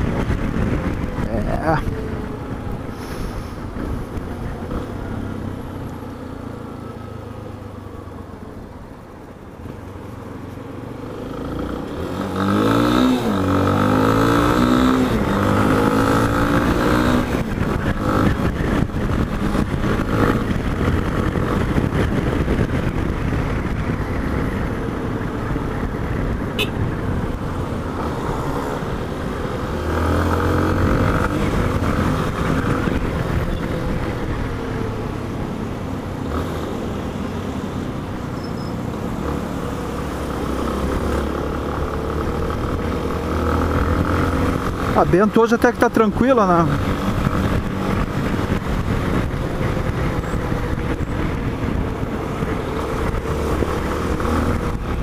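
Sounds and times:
road and wind noise: 0.0s - 55.0s
motorcycle engine revving: 10.8s - 55.0s.

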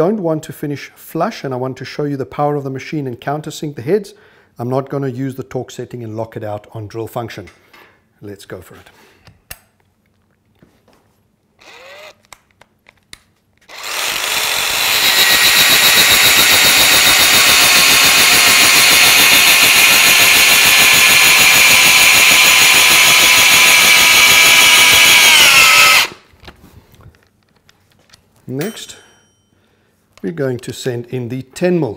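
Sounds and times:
cordless drill whining: 11.6s - 12.2s, 13.7s - 26.3s.

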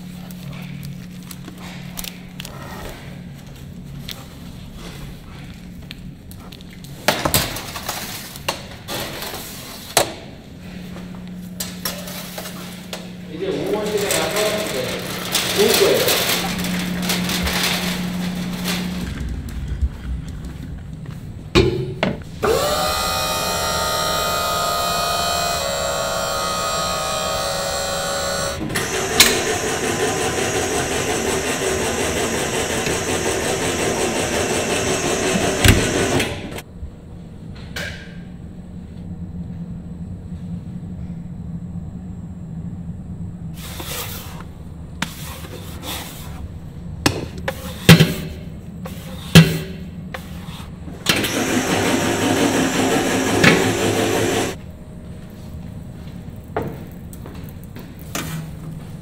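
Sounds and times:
production machinery running: 10.6s - 36.8s, 46.6s - 56.7s.

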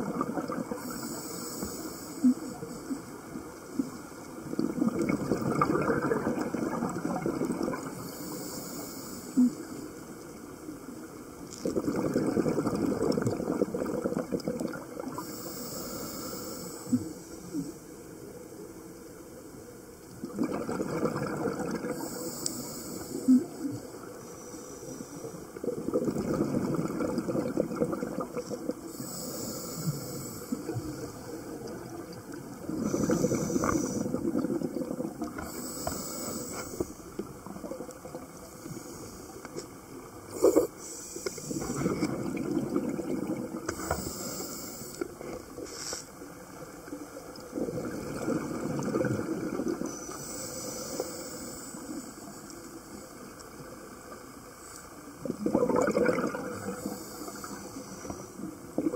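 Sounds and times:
exhaled bubbles underwater: 0.0s - 1.2s, 2.2s - 8.3s, 9.4s - 15.5s, 20.1s - 22.4s, 25.3s - 45.6s, 46.2s - 58.9s
regulator inhale hiss: 0.7s - 3.2s, 7.9s - 10.1s, 15.2s - 18.1s, 21.9s - 25.6s, 28.8s - 31.6s, 32.7s - 34.2s, 35.4s - 37.3s, 38.4s - 39.7s, 40.3s - 42.1s, 43.7s - 47.0s, 49.8s - 53.2s, 56.6s - 58.5s.

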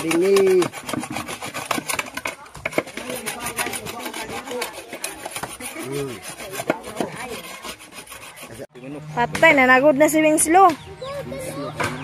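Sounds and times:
coconut grater rasping: 0.0s - 8.7s.

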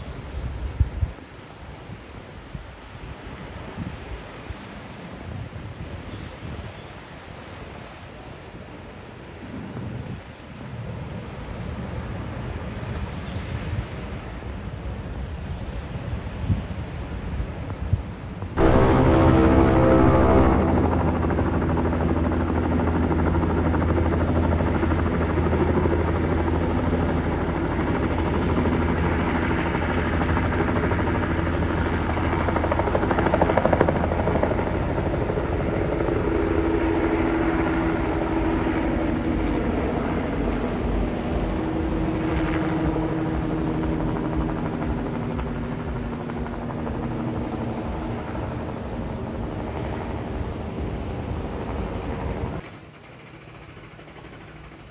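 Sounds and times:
helicopter rotor and turbine: 18.6s - 54.9s.

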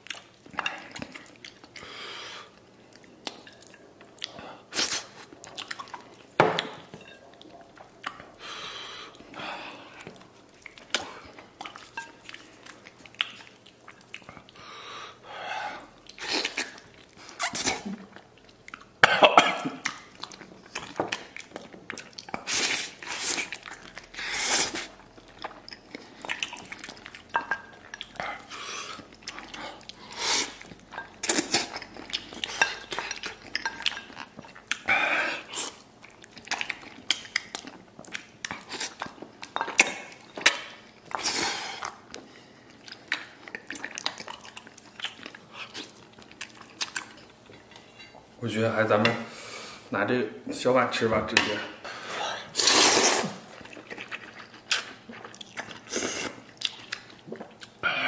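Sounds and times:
wet chewing: 0.0s - 14.6s, 19.8s - 48.2s, 52.4s - 58.0s
person slurping noodles: 52.3s - 53.5s, 55.8s - 56.4s.

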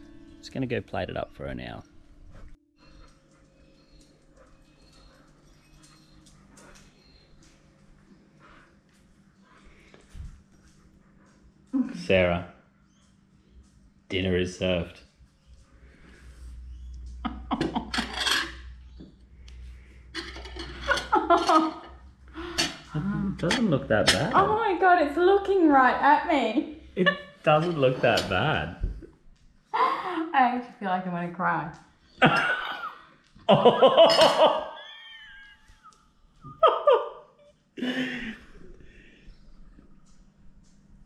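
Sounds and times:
person laughing: 17.2s - 18.0s, 20.8s - 21.9s, 27.0s - 27.4s, 32.2s - 37.2s, 37.8s - 38.6s
plate and cutlery scraping and clinking: 17.6s - 18.7s, 20.1s - 21.9s, 22.5s - 24.4s, 27.5s - 28.6s, 34.0s - 34.5s
steady low hum: 37.4s - 41.0s.

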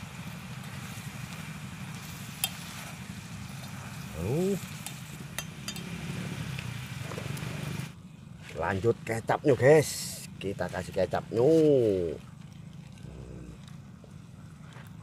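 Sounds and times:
faint sizzle: 0.0s - 15.0s
low hum: 0.0s - 15.0s
spoon stirring in hot oil: 0.7s - 5.9s
spoon clinking against pot: 5.4s - 5.9s.

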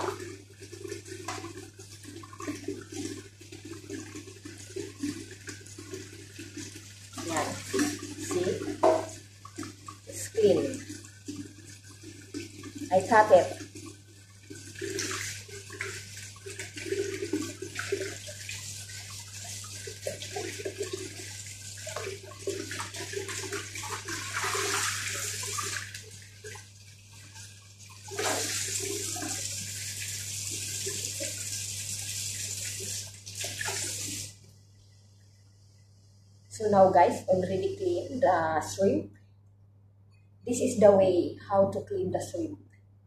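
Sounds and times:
tap running into steel sink: 8.8s - 9.2s
water splashing over hands: 28.1s - 29.5s.

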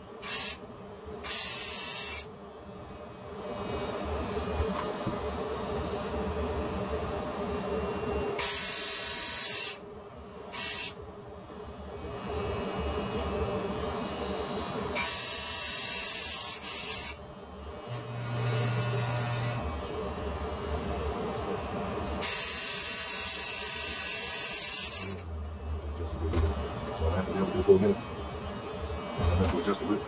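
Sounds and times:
electric hair clippers buzzing: 0.2s - 0.6s, 1.2s - 2.3s, 8.4s - 9.8s, 10.5s - 11.0s, 14.9s - 17.2s, 17.8s - 19.8s, 22.2s - 25.3s.

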